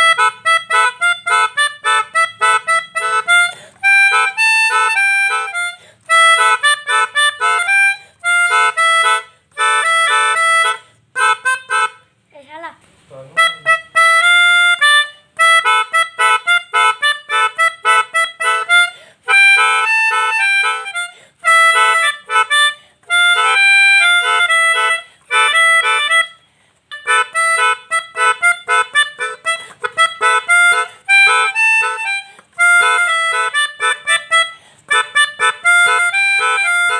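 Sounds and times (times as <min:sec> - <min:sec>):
melodica chord stabs: 0:00.0 - 0:12.2, 0:13.2 - 0:36.9.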